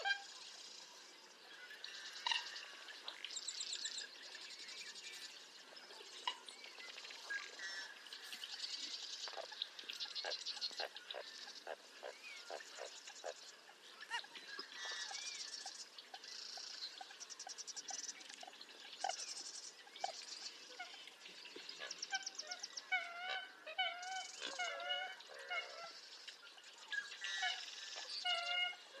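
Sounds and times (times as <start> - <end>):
nasal honk-like bird calls: 0.0 - 0.4, 21.8 - 26.0, 27.2 - 29.0
birds clucking: 6.0 - 26.4.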